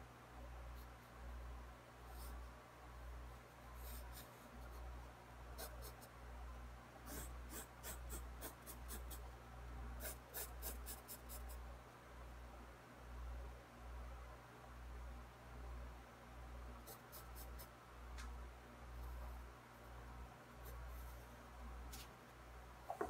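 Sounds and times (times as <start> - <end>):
pencil scratching on paper: 3.4 - 4.8, 5.6 - 6.1, 7.1 - 9.2, 10.0 - 11.6.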